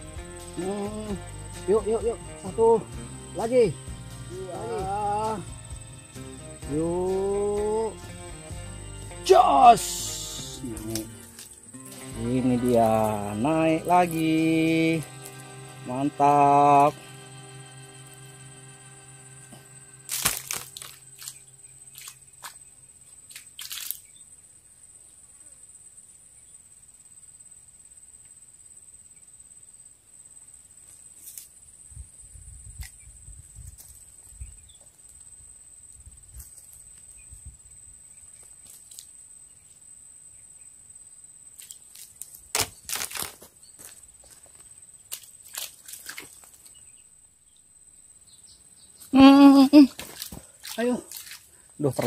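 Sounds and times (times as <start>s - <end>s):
high-pitched hum: 0.0s - 22.6s
dry fronds rustling and crunching: 10.7s - 15.9s, 17.0s - 22.6s, 23.3s - 24.0s, 41.6s - 46.8s.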